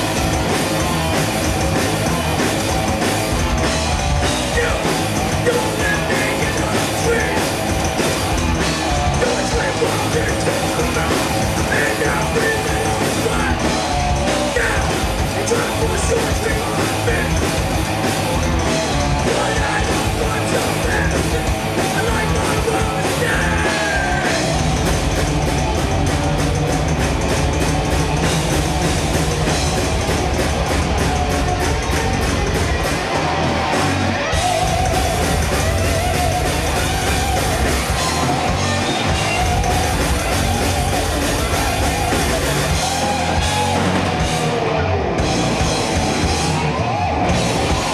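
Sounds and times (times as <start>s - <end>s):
fast drum strokes: 0.0s - 44.6s
heavy metal band playing: 0.0s - 47.9s
vocalist singing: 4.3s - 8.0s, 8.9s - 17.7s, 18.9s - 24.6s.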